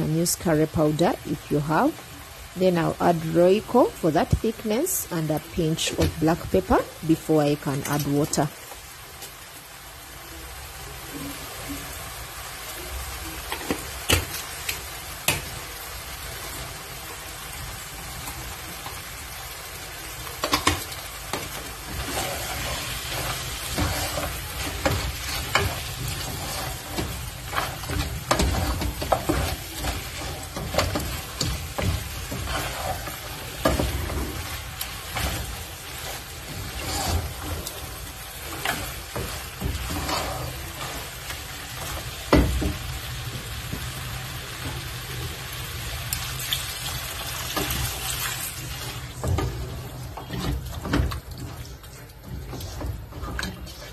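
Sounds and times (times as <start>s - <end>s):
meat sauce sizzling in a pot: 0.0s - 53.9s
wooden spoon scraping a pot: 20.2s - 45.5s, 47.5s - 53.9s.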